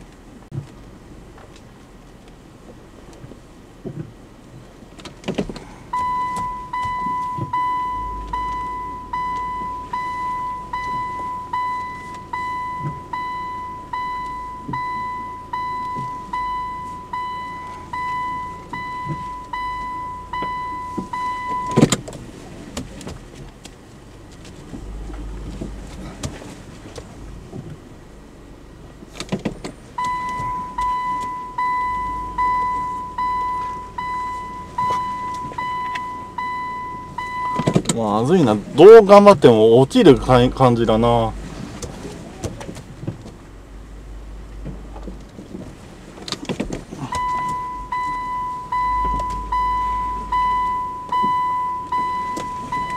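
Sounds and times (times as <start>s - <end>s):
reverse warning beeps: 5.9s - 21.8s, 30.0s - 37.8s, 47.0s - 52.9s
low rumble: 24.1s - 29.1s
clunk: 37.2s - 38.0s.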